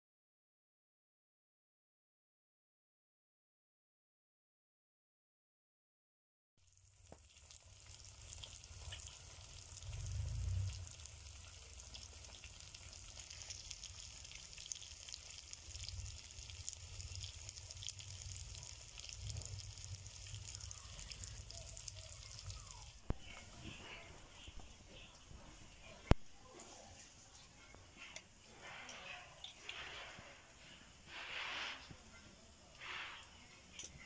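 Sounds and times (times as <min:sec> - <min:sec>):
food sizzling in a pan: 0:06.6 - 0:34.0
low rumble: 0:09.8 - 0:11.3.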